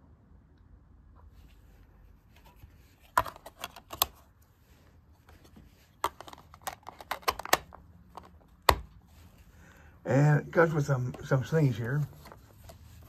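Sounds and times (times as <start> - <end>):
plastic case clicks and rattles: 3.1 - 4.2, 6.0 - 9.0.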